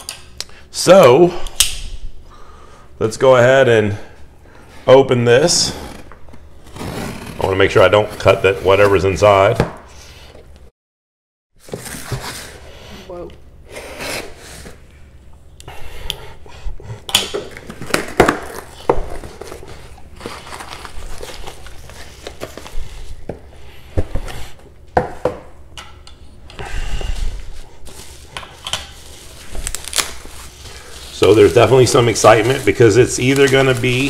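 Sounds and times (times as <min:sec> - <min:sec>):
cardboard scraping and rustling: 0:11.6 - 0:12.6
packing foam crinkling: 0:17.6 - 0:23.2, 0:29.0 - 0:34.0.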